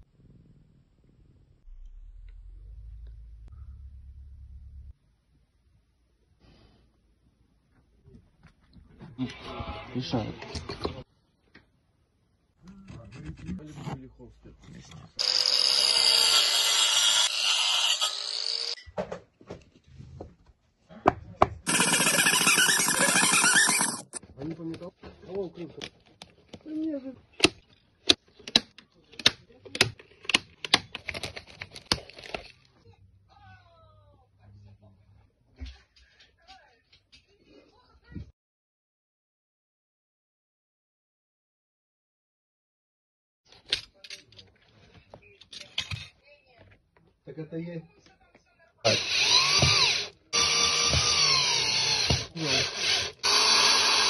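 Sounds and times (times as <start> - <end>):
cordless drill whining: 15.2 - 18.8, 21.7 - 24.2, 48.9 - 54.0.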